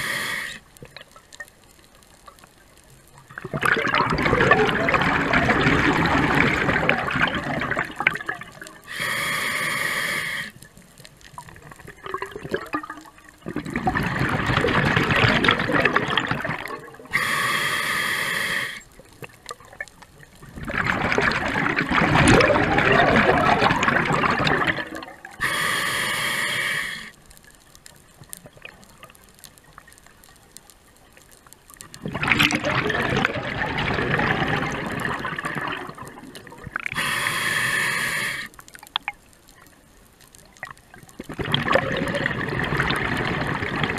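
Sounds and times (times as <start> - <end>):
bubbling exhale: 0.0 - 0.6, 3.4 - 10.6, 12.0 - 18.9, 20.6 - 27.2, 32.0 - 38.6, 41.2 - 43.9
regulator hiss on inhale: 0.0 - 0.8, 8.8 - 10.7, 17.1 - 18.9, 25.4 - 27.3, 36.9 - 38.7.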